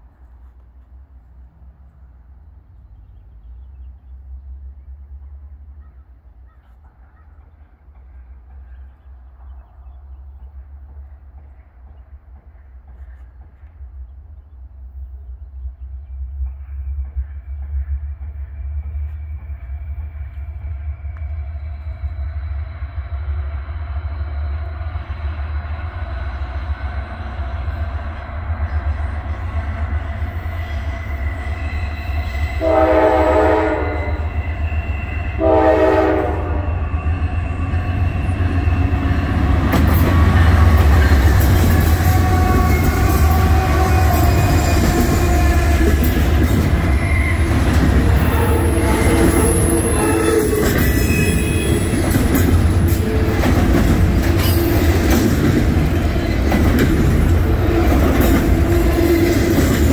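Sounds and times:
diesel locomotive rumble: 0.0s - 59.9s
train horn blasts: 30.7s - 39.0s, 40.1s - 52.1s.

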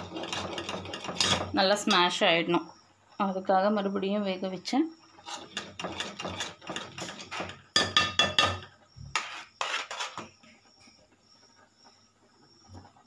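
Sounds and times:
metal ladle scraping steel pot: 0.0s - 2.2s, 5.2s - 10.3s.

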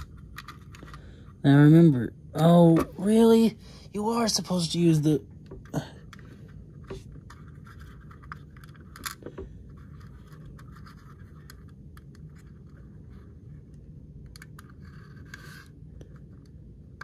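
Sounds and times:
small parts clicking: 7.2s - 9.3s
faint scratching: 14.6s - 16.5s.

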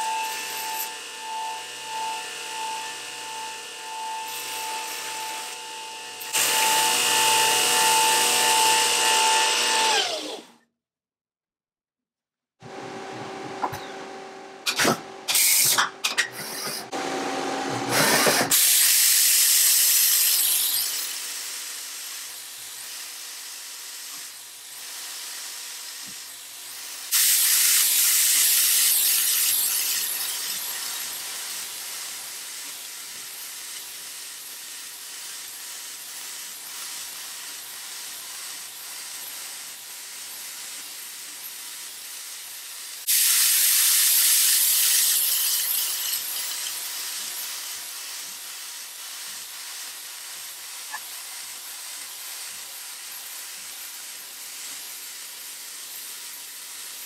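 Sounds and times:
small motor bursts: 0.0s - 10.5s, 19.3s - 57.0s
loud hissing spray: 18.5s - 23.2s, 27.0s - 57.0s.

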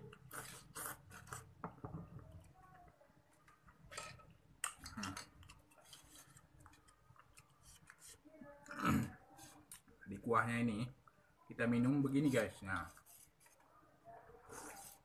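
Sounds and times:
person slurping noodles: 0.2s - 1.5s.

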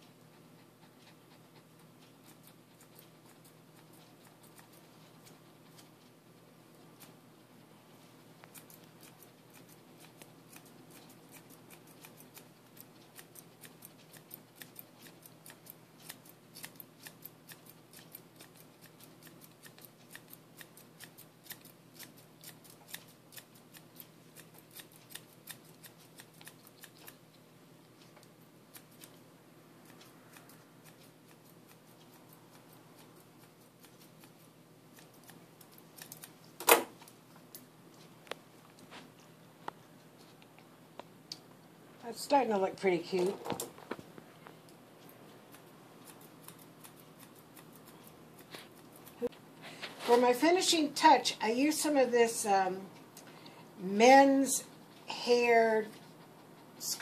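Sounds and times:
scissors snipping fur: 2.0s - 5.9s, 8.4s - 27.3s, 28.1s - 29.2s, 29.8s - 36.4s, 45.0s - 49.4s.

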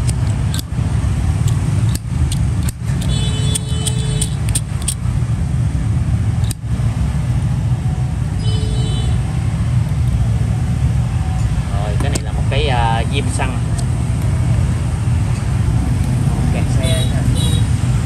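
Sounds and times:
street traffic rumble: 0.0s - 18.0s
vehicle horn honking: 3.0s - 4.4s, 16.8s - 17.8s.

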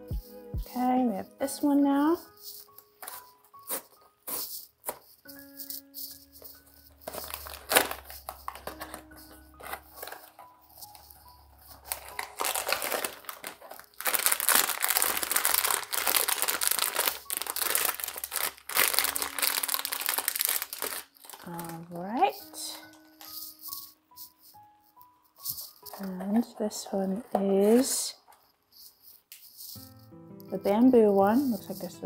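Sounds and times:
foil bag crinkling and tearing: 2.8s - 5.5s, 6.4s - 23.5s, 25.5s - 26.2s.

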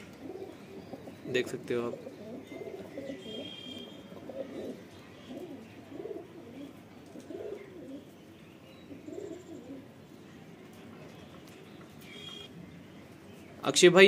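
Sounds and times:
pigeon cooing: 0.0s - 8.1s, 8.8s - 9.9s.

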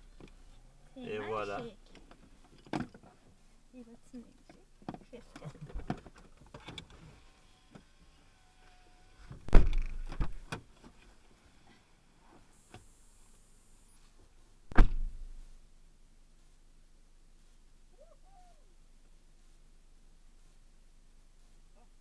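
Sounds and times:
car door thunks: 9.3s - 10.7s, 14.7s - 15.3s
shuffling: 13.2s - 22.0s.

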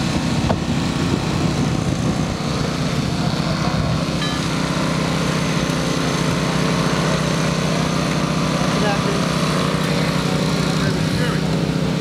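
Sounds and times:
small gasoline engine running: 0.0s - 12.0s.

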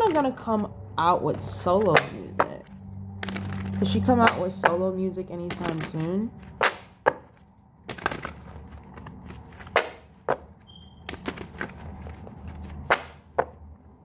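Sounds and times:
cards rustling: 0.0s - 14.0s
cards snapping and tapping: 3.2s - 4.8s, 5.4s - 13.6s.

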